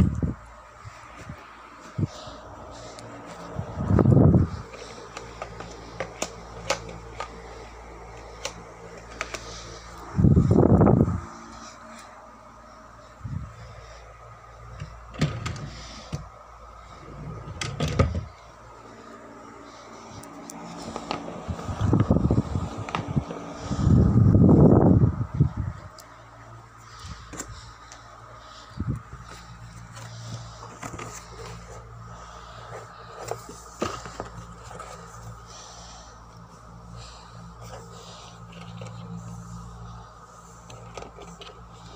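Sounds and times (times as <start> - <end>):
steady low hum: 0.0 - 41.9
drawer sliding open: 17.1 - 18.3
rummaging in a cardboard box: 26.8 - 41.9.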